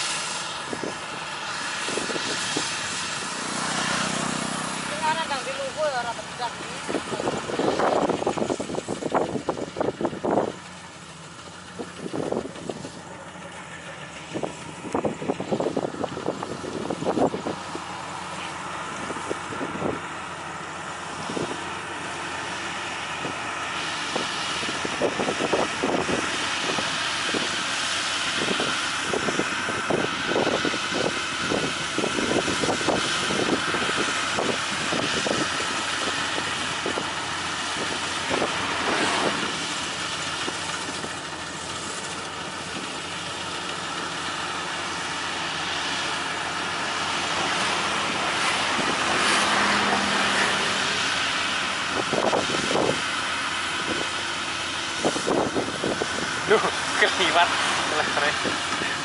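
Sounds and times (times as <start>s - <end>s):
combine harvester running: 0.0s - 59.0s.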